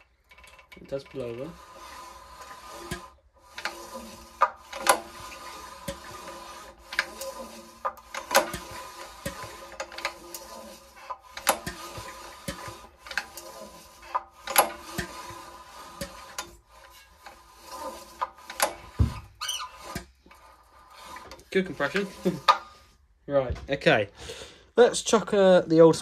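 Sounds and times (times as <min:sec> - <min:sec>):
pull-start cord rasping: 0:00.0 - 0:22.7
short rising squeak: 0:17.6 - 0:22.9.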